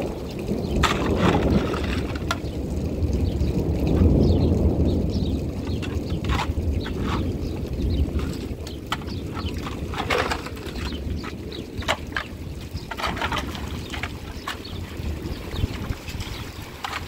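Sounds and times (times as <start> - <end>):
wind rumble on microphone: 0.0 - 17.0
shovel scraping wet mud: 0.8 - 2.4, 5.7 - 7.4, 8.1 - 14.7, 16.0 - 17.0.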